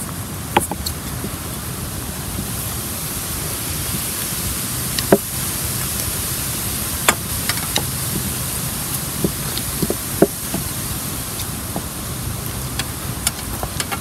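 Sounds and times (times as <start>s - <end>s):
steady hiss: 0.0s - 14.0s
sharp knocks of wooden struts: 9.2s - 10.7s.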